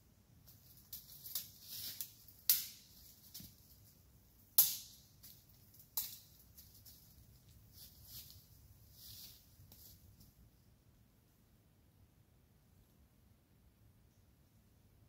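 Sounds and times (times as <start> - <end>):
crackling dry leaves: 0.4 - 10.3.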